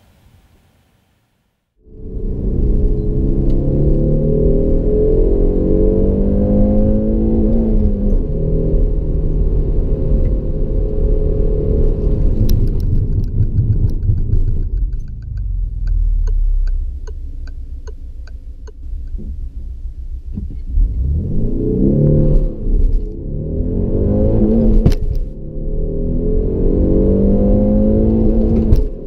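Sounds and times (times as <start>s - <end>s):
car engine revving: 1.8s - 29.0s
car road rumble: 1.8s - 29.0s
steady clicking: 12.4s - 19.2s.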